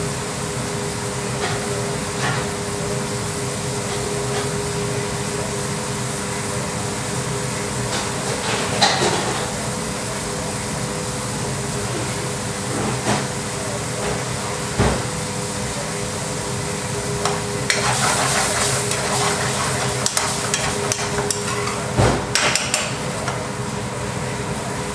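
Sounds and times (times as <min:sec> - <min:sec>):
ventilation and gas burners humming: 0:00.0 - 0:24.9
kitchen clatter: 0:07.9 - 0:09.5, 0:17.2 - 0:23.4.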